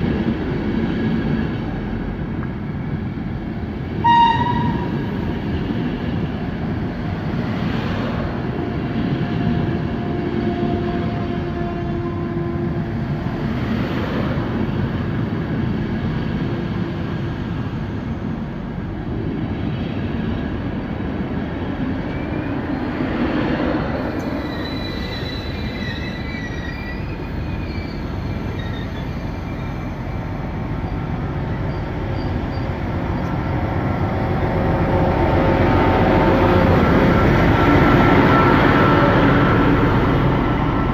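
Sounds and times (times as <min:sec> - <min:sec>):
diesel locomotive engine: 0:00.0 - 0:40.9
train coaches rolling on rails: 0:00.0 - 0:40.9
wheel squeal: 0:24.2 - 0:30.0.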